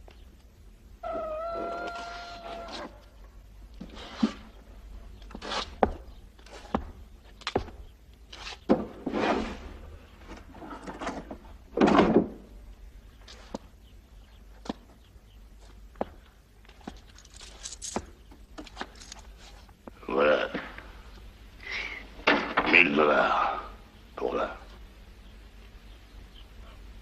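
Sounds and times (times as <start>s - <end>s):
furniture scraping: 8.4s - 9.8s
wooden knocks and clunks: 8.7s - 9.2s, 10.3s - 12.6s, 22.2s - 22.8s.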